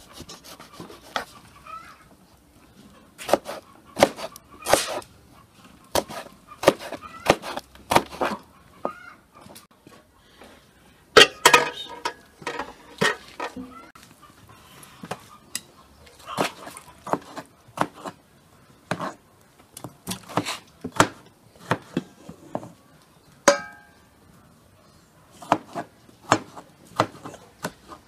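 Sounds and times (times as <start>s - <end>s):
knife chopping on wooden board: 3.2s - 5.0s, 5.9s - 8.4s, 25.4s - 27.9s.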